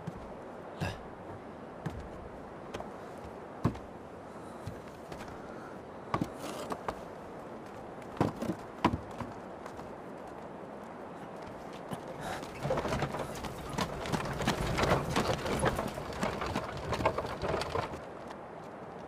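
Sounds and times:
light wooden knocks: 0:00.0 - 0:03.9, 0:06.1 - 0:10.5, 0:11.3 - 0:18.4
footsteps: 0:06.1 - 0:19.0.

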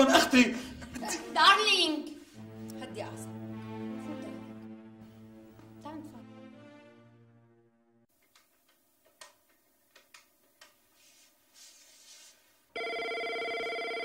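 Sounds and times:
background music: 0:00.0 - 0:08.1
telephone ringing: 0:12.8 - 0:14.0.

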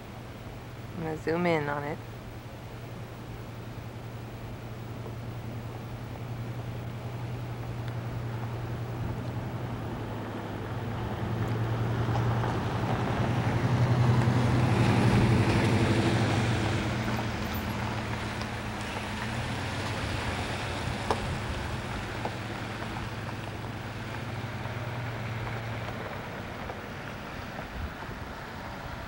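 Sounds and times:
low engine hum: 0:00.0 - 0:29.0
wind noise on microphone: 0:27.4 - 0:29.0.

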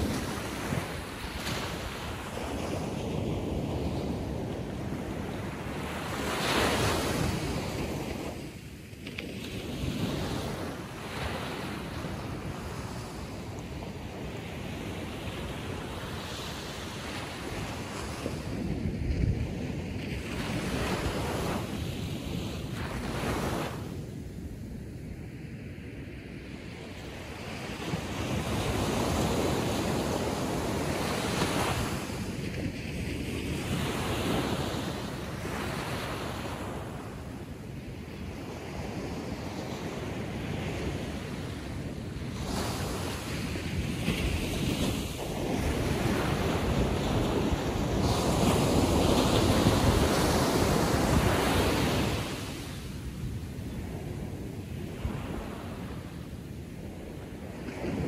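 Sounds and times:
ocean waves breaking: 0:39.2 - 0:58.0.

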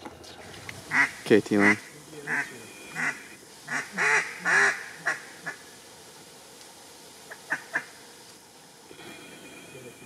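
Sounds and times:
duck quacks: 0:00.9 - 0:05.6.

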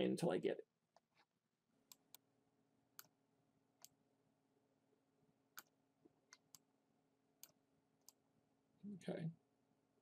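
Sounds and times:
faint steady hum: 0:00.0 - 0:10.0
computer mouse clicks: 0:00.9 - 0:02.3, 0:02.9 - 0:03.2, 0:03.8 - 0:04.0, 0:05.5 - 0:06.7, 0:07.4 - 0:08.2.

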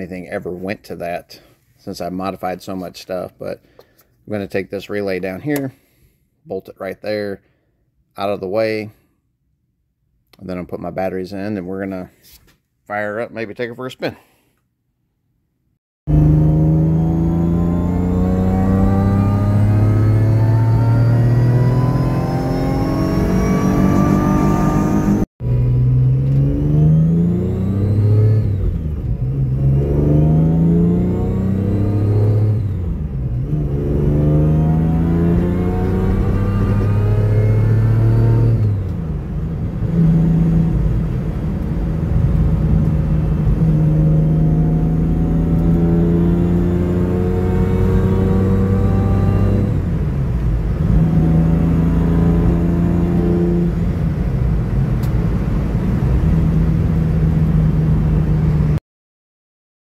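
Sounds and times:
car engine pulling hard: 0:16.1 - 0:58.8.

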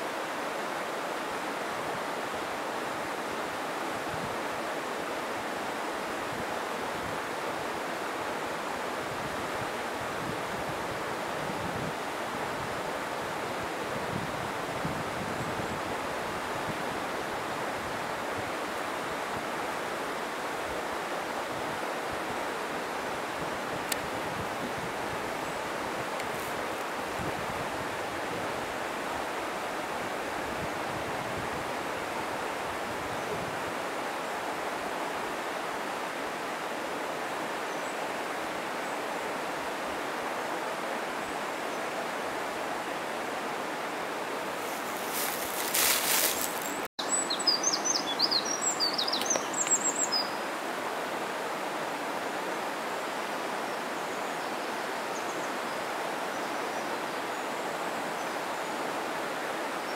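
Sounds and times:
stream water rushing: 0:00.0 - 0:59.9
small bird chirps: 0:44.6 - 0:50.4.

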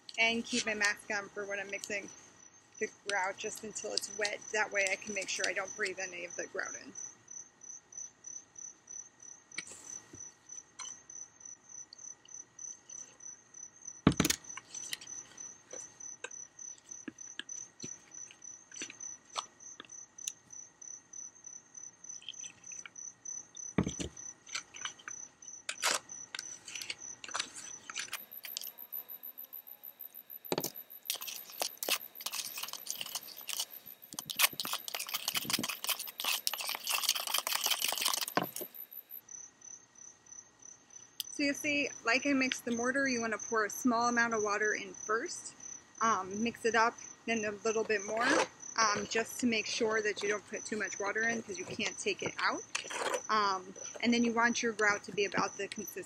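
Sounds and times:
insects trilling: 0:00.0 - 0:56.0
scattered clicks and knocks: 0:14.1 - 0:15.1, 0:23.8 - 0:39.2
trowel scraping in plastic bucket: 0:30.5 - 0:38.8, 0:47.8 - 0:55.9.

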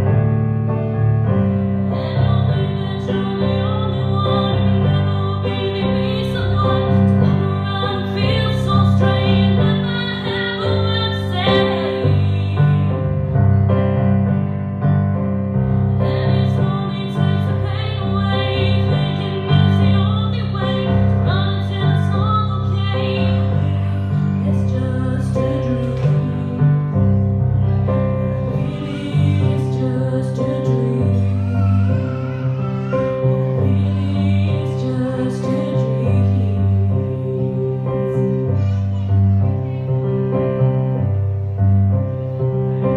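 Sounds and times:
electric piano chords: 0:00.0 - 0:42.9
woman singing a slow song: 0:01.9 - 0:13.1, 0:16.0 - 0:27.8, 0:28.4 - 0:38.8.

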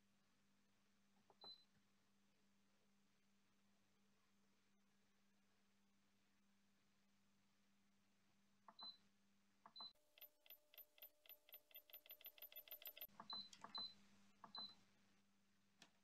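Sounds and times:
button clicks with short beeps: 0:09.7 - 0:14.8
fast run of clicks: 0:09.9 - 0:13.8.

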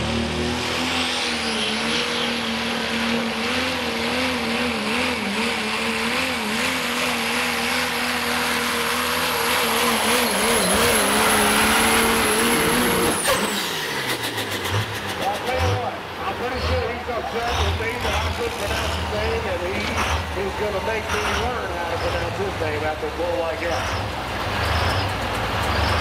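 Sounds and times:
diesel truck engine drone: 0:00.0 - 0:26.0
turbocharger whistle: 0:09.4 - 0:14.4.

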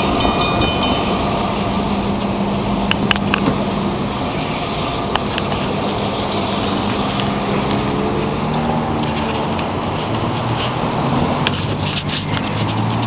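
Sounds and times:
road traffic drone: 0:00.0 - 0:13.0
camera handling noise: 0:05.2 - 0:10.8.

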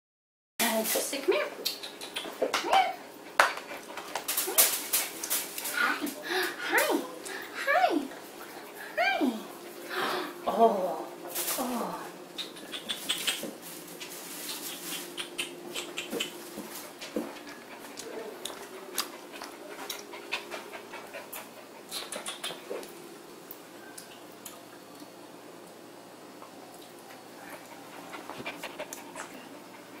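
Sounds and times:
dog panting: 0:14.6 - 0:22.9, 0:27.4 - 0:30.0.

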